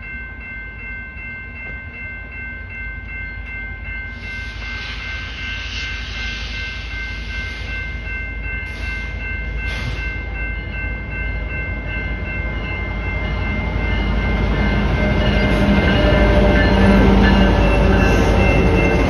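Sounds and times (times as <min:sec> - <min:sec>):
diesel locomotive rumble: 0:04.1 - 0:19.0.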